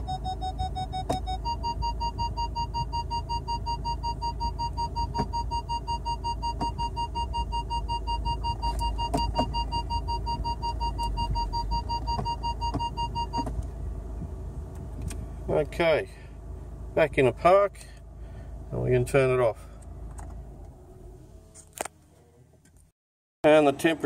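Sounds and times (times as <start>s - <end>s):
car warning chime beeping: 0.0s - 13.6s
low engine idle: 0.0s - 22.6s.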